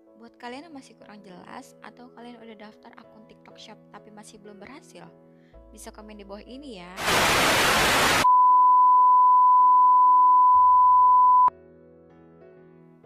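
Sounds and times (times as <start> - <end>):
faint background music: 0.0 - 7.0
tv static hiss: 7.0 - 8.3
high test-pattern beep: 8.2 - 11.5.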